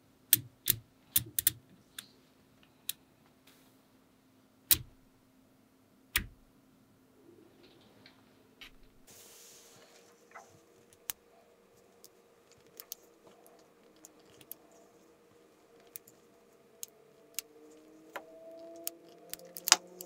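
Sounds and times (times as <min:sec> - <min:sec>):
magnetic balls clicking: 0:00.3 - 0:02.1, 0:04.7 - 0:05.0, 0:06.1 - 0:06.4, 0:10.8 - 0:20.0.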